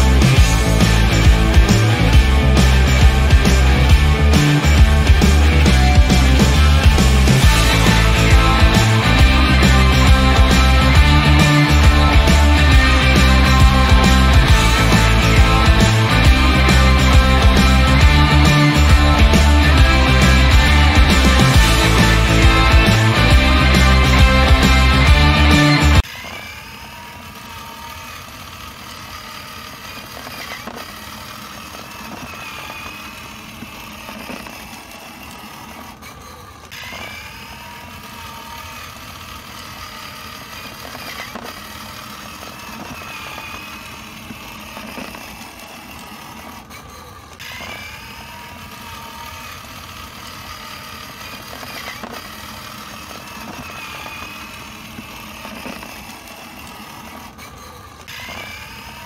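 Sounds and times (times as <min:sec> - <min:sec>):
recorded motorcycle engine sound: 0:00.0 - 0:26.1.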